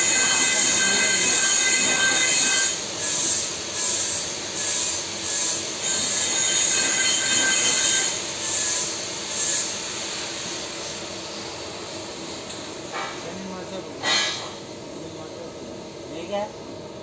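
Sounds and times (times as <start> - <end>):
metallic screech and hiss: 0.0 - 11.5, 14.0 - 14.6.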